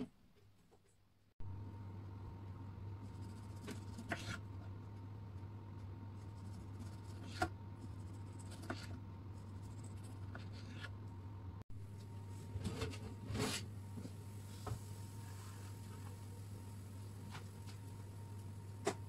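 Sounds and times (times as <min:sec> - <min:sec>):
steady low hum: 0:01.4 - 0:19.0
knife slicing tomato: 0:03.1 - 0:04.5.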